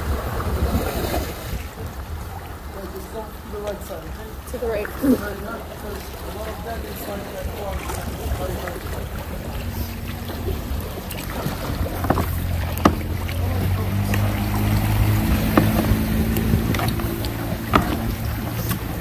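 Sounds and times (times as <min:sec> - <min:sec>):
kayak paddles knocking and splashing: 0:00.0 - 0:19.0
motorboat engine humming: 0:00.0 - 0:19.0.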